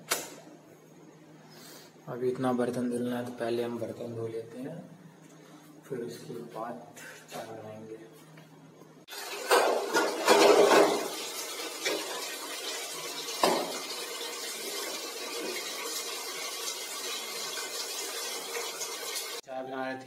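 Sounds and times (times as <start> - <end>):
pots clattering in sink: 9.1 - 19.4
running tap water: 9.1 - 19.4.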